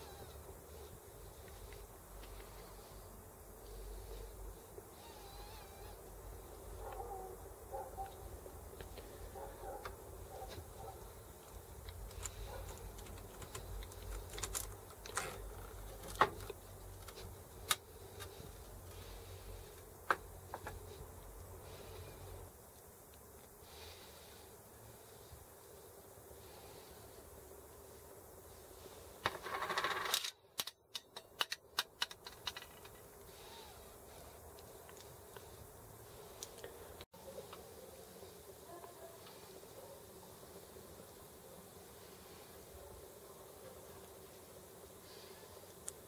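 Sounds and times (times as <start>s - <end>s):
small metal clicks and taps: 30.2s - 33.0s.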